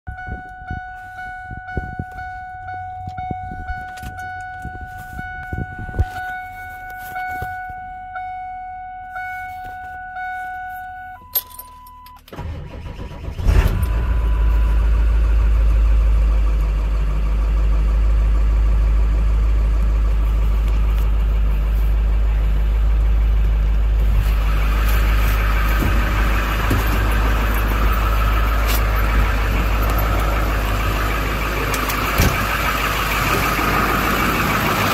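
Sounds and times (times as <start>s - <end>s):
truck engine starting and running: 0.0s - 34.9s
steady tone: 0.1s - 11.5s.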